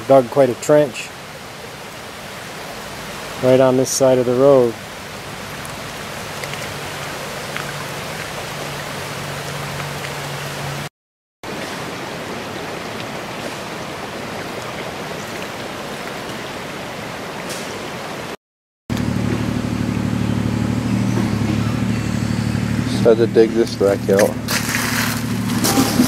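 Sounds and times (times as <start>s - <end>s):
water rushing down trench: 0.0s - 16.8s, 23.8s - 26.0s
rain: 0.0s - 18.4s.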